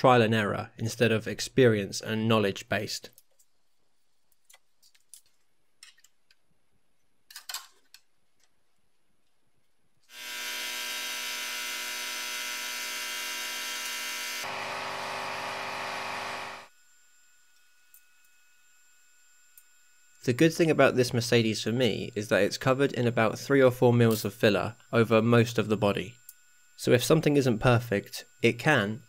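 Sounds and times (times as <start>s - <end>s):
electric power tool running: 10.1s - 20.2s.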